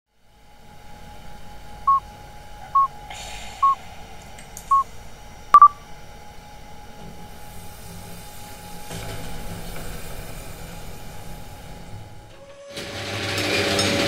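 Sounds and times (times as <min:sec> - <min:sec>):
faint steady hum: 0:00.1 - 0:12.6
short electronic beeps: 0:05.6 - 0:05.8.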